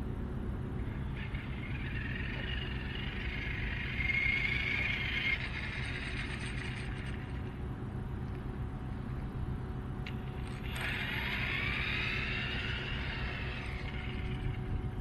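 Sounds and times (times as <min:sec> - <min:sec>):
rc car motor whining: 0:00.8 - 0:07.6, 0:10.0 - 0:15.0
wind rumble on microphone: 0:13.6 - 0:15.0.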